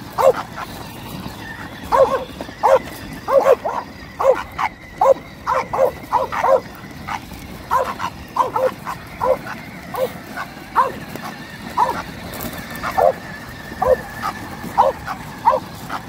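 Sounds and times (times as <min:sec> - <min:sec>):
dog barking: 0:00.1 - 0:00.4, 0:01.8 - 0:10.2, 0:10.8 - 0:11.0, 0:11.8 - 0:12.0, 0:12.8 - 0:13.2, 0:13.8 - 0:15.8.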